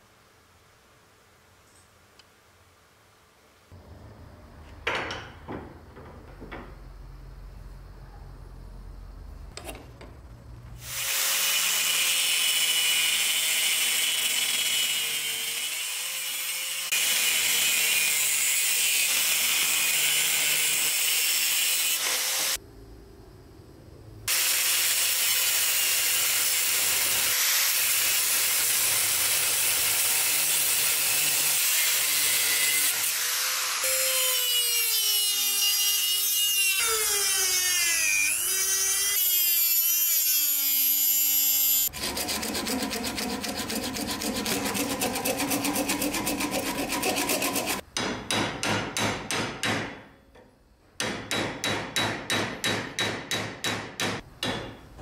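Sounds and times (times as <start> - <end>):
grinder cutting steel: 10.8 - 22.6, 24.3 - 47.9.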